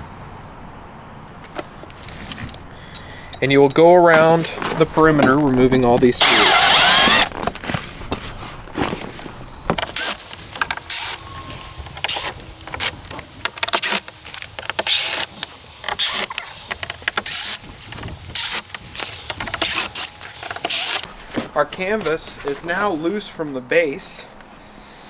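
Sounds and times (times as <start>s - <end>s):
canvas rustling and scraping: 3.8s - 6.2s, 7.1s - 23.2s.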